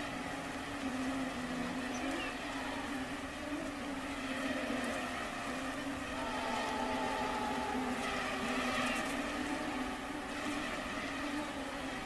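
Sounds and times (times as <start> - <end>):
mosquitoes buzzing: 0.0 - 12.0.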